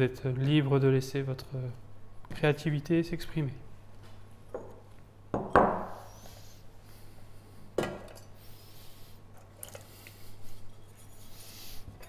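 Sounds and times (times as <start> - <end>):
bowl knocking on wooden worktop: 4.6 - 6.0.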